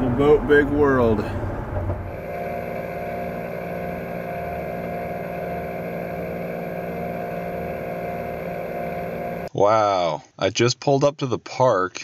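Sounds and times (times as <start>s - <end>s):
car engine humming: 0.0s - 9.5s.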